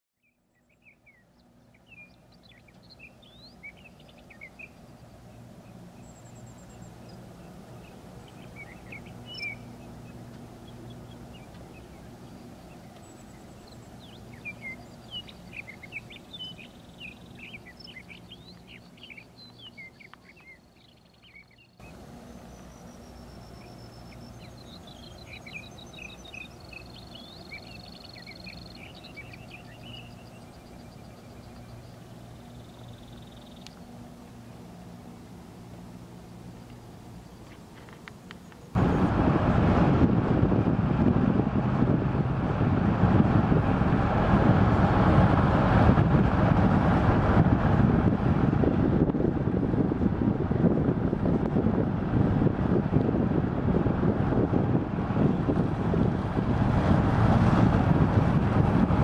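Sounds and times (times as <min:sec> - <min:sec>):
songbirds chirping and trilling: 0:00.2 - 0:39.1
low mechanical hum: 0:00.2 - 0:59.0.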